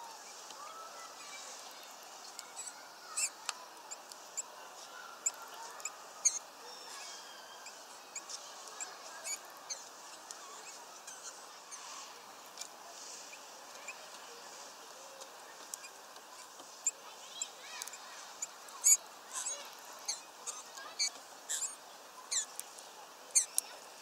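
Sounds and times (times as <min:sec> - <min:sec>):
steady soft hiss: 0:00.0 - 0:24.0
small birds chipping: 0:01.0 - 0:11.9, 0:13.3 - 0:23.8.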